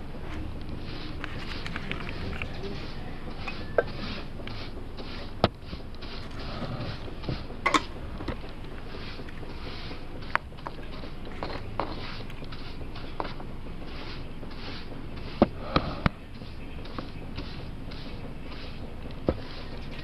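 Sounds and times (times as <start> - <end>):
steady hiss: 0.0 - 20.0
metal paint tins clinking: 7.6 - 8.0.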